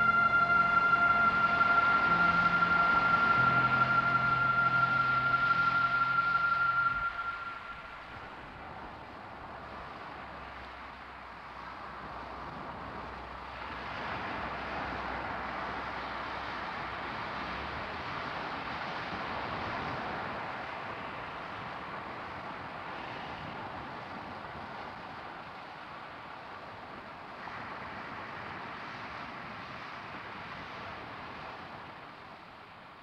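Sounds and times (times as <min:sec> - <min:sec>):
steady rushing noise: 0:00.0 - 0:25.0.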